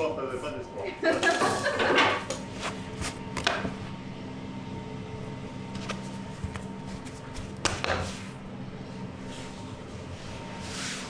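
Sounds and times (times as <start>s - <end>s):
machine hum: 0.0s - 11.0s
hands tapping dough on wood: 7.6s - 8.1s.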